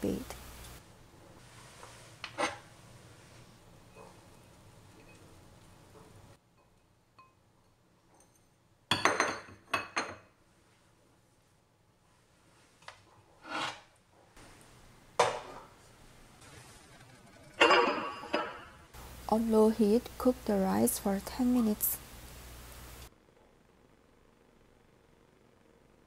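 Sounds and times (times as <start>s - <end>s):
utensil scraping: 13.3s - 13.9s.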